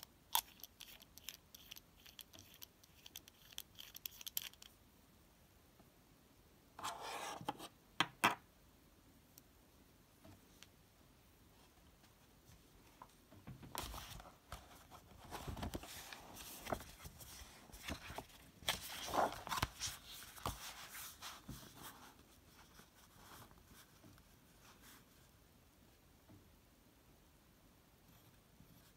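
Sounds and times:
pages rustling: 13.7s - 23.6s.

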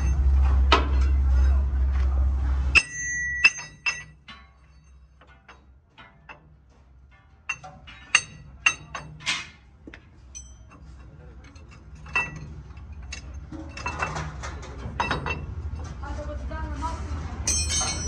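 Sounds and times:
hammer striking steel spring: 2.8s - 6.5s, 7.1s - 9.6s
metal clinks and taps: 2.8s - 16.0s, 17.5s - 18.0s.

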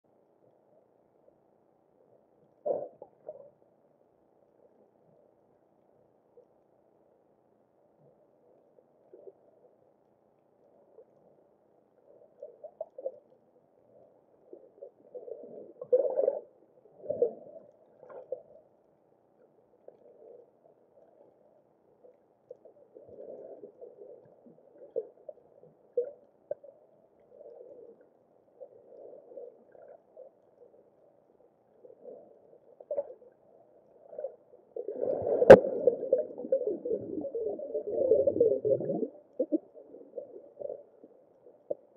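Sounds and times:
muffled underwater gurgling: 31.8s - 41.9s.

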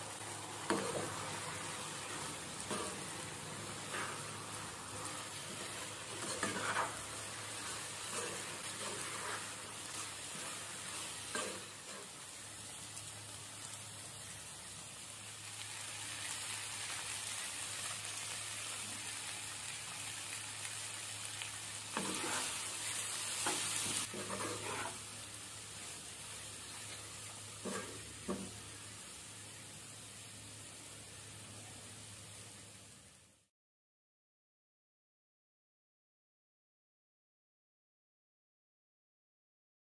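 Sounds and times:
chicken sizzling in a frying pan: 0.0s - 33.5s
spatula scraping and stirring: 2.0s - 12.2s, 21.9s - 22.7s, 23.4s - 25.1s, 27.6s - 28.5s.

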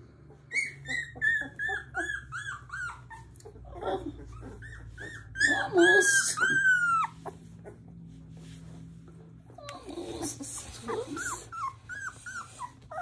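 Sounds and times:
puppy whining: 0.1s - 13.0s
puppies crying: 0.2s - 8.3s, 9.1s - 13.0s.

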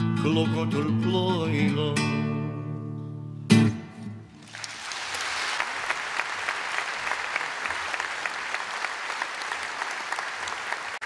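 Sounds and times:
guitar: 0.0s - 4.4s
audience applauding: 4.4s - 11.0s.

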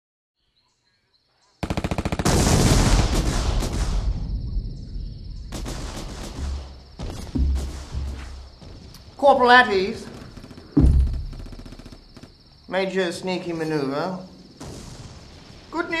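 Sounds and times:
machine-gun bursts: 1.6s - 3.6s
heavy volley of shots and blasts: 1.6s - 12.0s, 14.6s - 16.0s.

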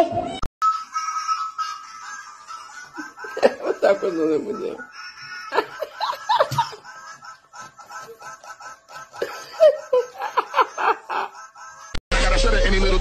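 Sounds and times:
person laughing: 1.6s - 12.0s.

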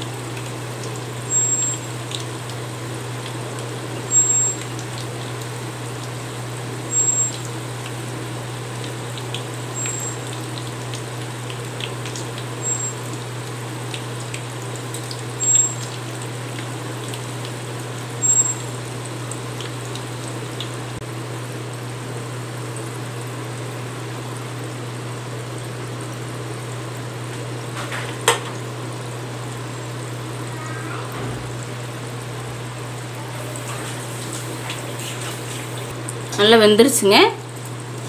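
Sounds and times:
batter deep-frying in oil: 0.0s - 38.0s.

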